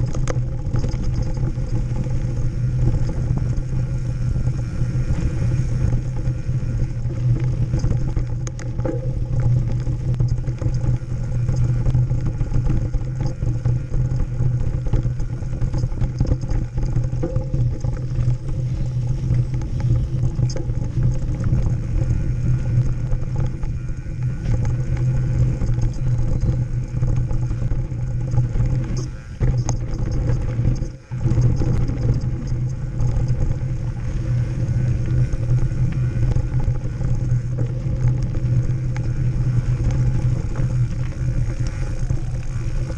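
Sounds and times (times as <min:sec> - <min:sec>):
bike clattering and rattling: 0:00.0 - 0:42.9.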